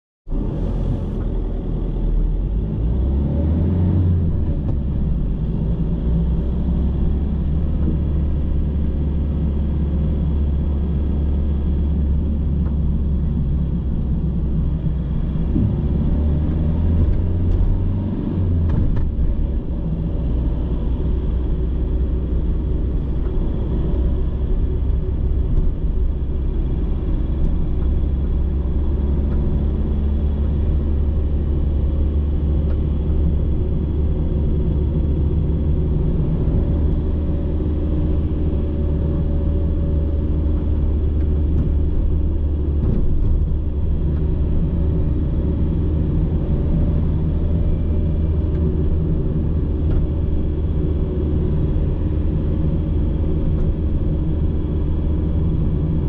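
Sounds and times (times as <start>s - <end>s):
car engine and road noise: 0.2s - 56.0s.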